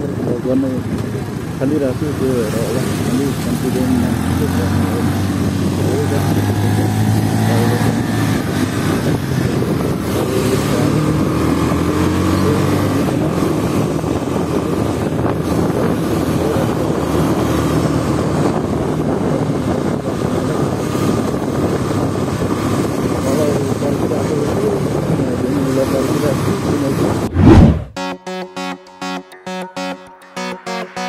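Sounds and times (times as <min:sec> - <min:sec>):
wind rushing over microphone: 0:26.9 - 0:27.9.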